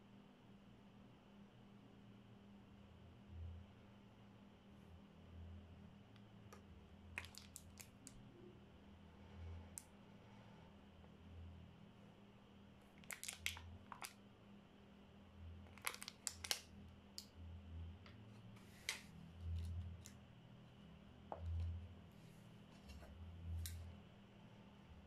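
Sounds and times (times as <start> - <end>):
plastic packaging crinkling and clicking: 7.1 - 8.2, 12.9 - 14.2, 15.7 - 17.3.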